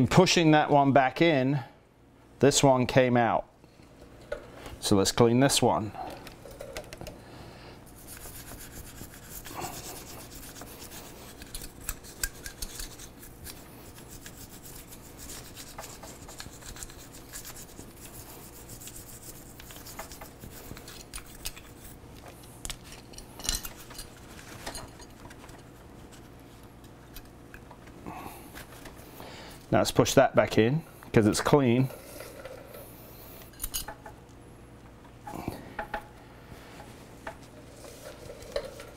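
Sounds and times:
small brush scrubbing metal: 7.9 - 22.0, 36.8 - 38.9.

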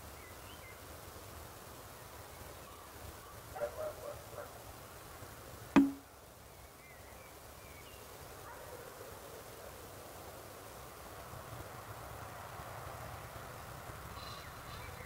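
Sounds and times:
sharp knock with low ring: 5.8 - 6.0.

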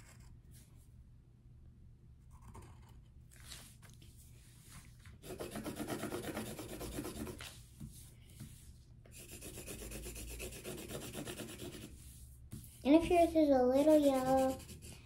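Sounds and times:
pencil scratching on paper: 0.0 - 0.8, 5.2 - 15.0.

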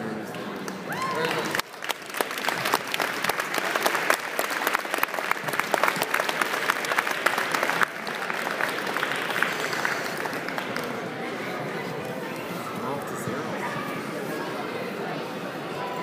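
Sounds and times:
audience applauding: 0.6 - 11.4.

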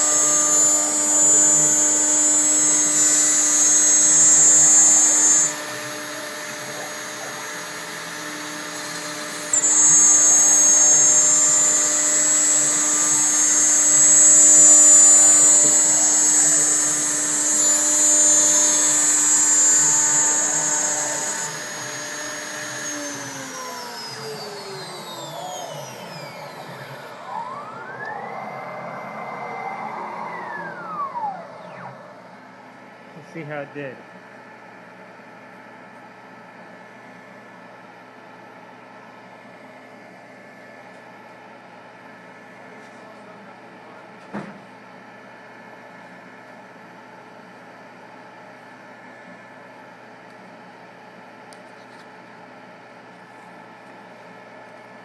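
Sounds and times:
router cutting plywood hiss: 0.0 - 32.0
router spindle whine: 0.0 - 32.9.

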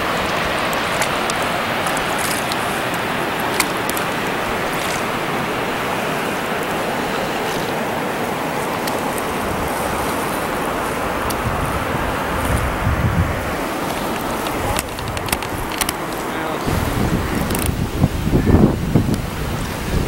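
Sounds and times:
small paddle splashes: 0.0 - 11.5
water rushing along kayak hull: 0.0 - 20.0.

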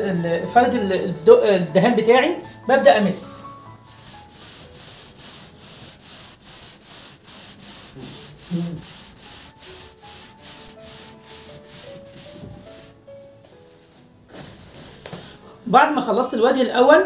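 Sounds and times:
paint roller swishing on wall: 3.6 - 15.4.

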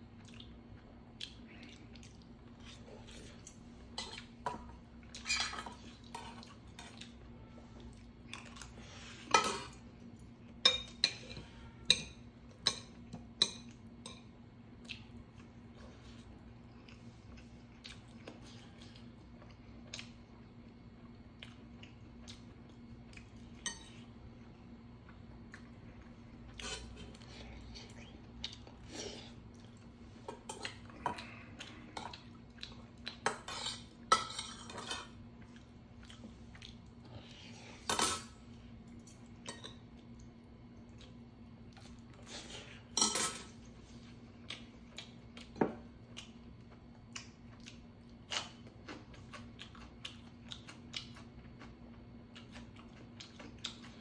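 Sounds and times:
cutlery clinking on metal bowls: 10.6 - 14.3, 37.9 - 38.3, 43.0 - 43.5.

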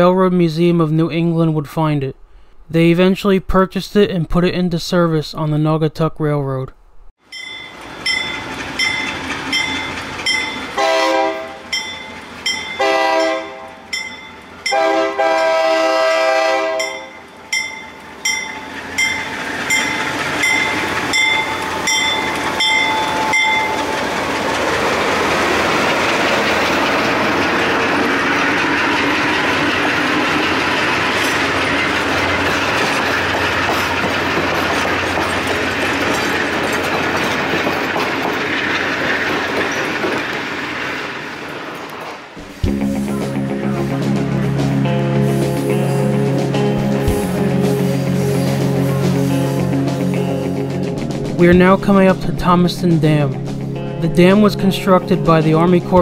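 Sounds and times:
locomotive bell ringing: 7.2 - 15.6, 16.7 - 37.6
train rumbling past: 7.2 - 56.0
wheels clacking over rail joints: 7.4 - 15.5, 16.8 - 42.8
locomotive air horn blasts: 10.8 - 11.7, 12.8 - 13.9, 14.7 - 17.2.

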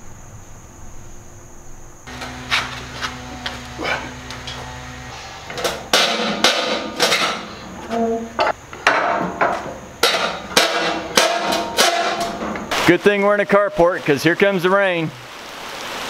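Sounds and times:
low hum: 0.0 - 12.7.

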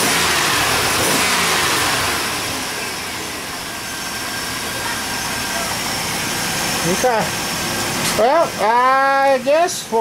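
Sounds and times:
truck engine revving: 0.0 - 10.0.

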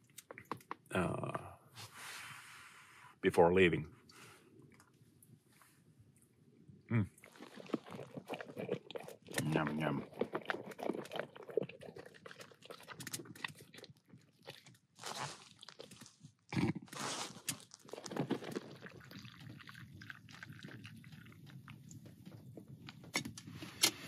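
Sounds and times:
dog crunching kibble: 7.2 - 22.4.

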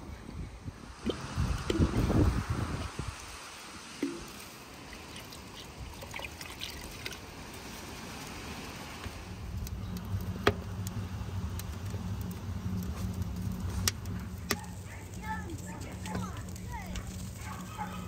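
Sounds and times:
burning logs crackling: 0.0 - 18.0
liquid trickling into pot: 0.9 - 7.5
wood fire rumbling in stove: 5.9 - 18.0.

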